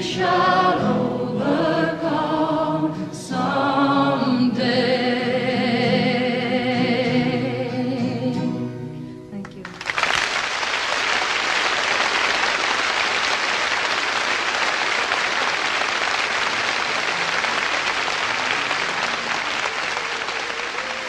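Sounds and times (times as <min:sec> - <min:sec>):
audience applauding: 0:09.6 - 0:21.0.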